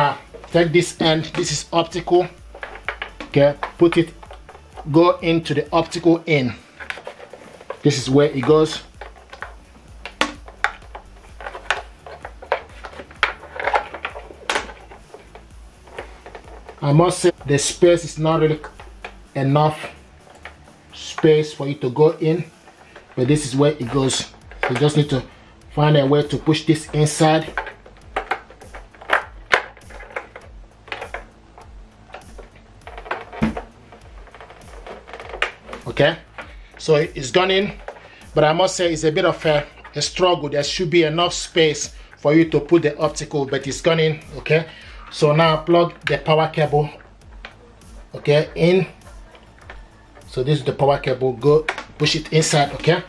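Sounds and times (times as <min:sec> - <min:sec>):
plastic clicks and knocks: 0:01.2 - 0:04.9, 0:08.8 - 0:17.5, 0:27.4 - 0:36.6, 0:51.6 - 0:52.0.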